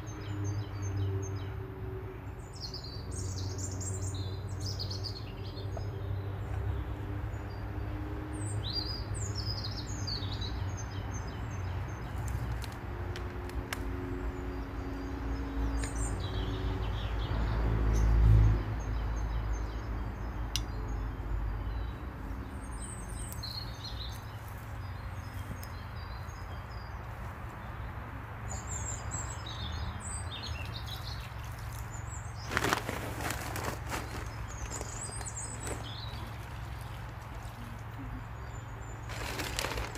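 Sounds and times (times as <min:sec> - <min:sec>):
small birds chirping: 0:02.3 - 0:39.9
rustling or scraping: 0:32.4 - 0:36.3, 0:39.0 - 0:39.9.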